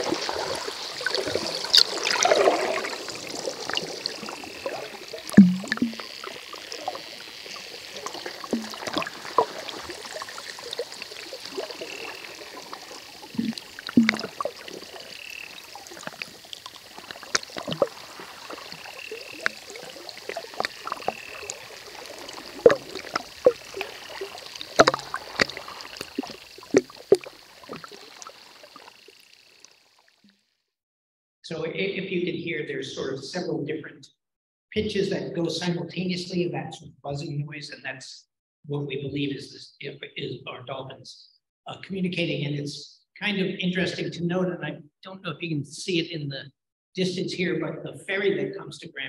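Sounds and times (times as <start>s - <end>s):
drifting buzzing tones: 0.0s - 29.8s
underwater water hiss: 0.0s - 29.8s.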